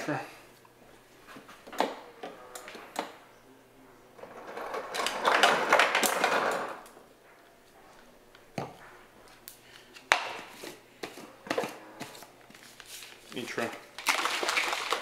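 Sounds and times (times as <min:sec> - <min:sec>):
water dispenser filling plastic bottle: 0:14.0 - 0:15.0.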